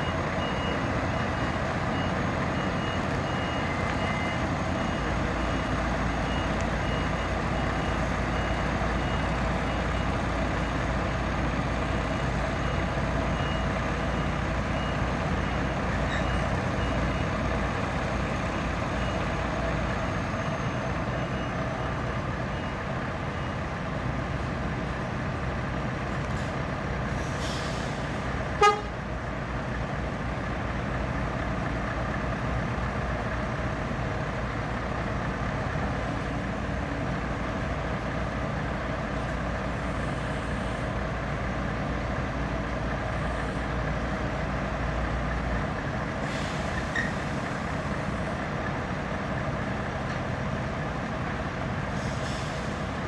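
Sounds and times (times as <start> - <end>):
heavy diesel engines running: 0.0 - 53.0
loud horn toot: 28.6 - 29.0.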